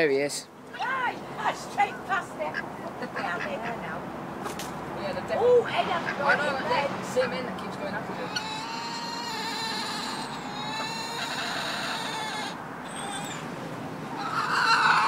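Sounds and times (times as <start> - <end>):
rooster crowing: 8.3 - 13.4, 14.1 - 15.0.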